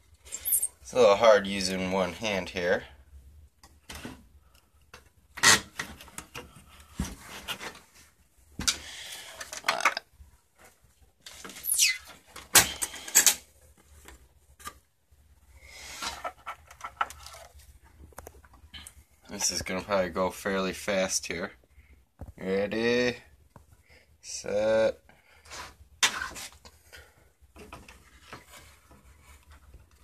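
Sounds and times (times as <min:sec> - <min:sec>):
short falling squeak: 0:11.6 - 0:12.2
scraping and rubbing: 0:25.5 - 0:26.7.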